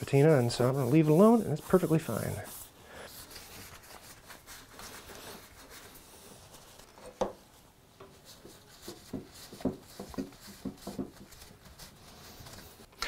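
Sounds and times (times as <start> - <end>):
cloth wiping metal: 0.0 - 12.9
metal knocking on wooden bench: 9.1 - 11.1.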